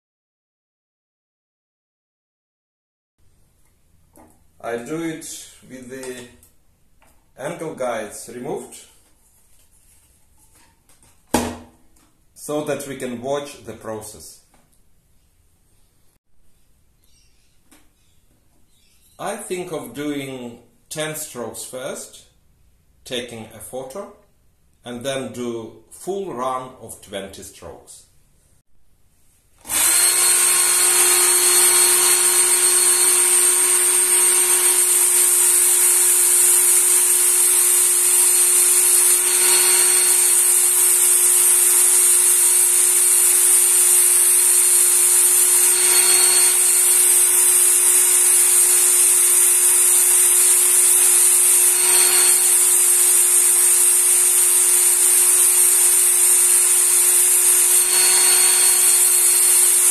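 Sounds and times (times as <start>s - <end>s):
knife sharpener motor whining: 29.6s - 59.9s.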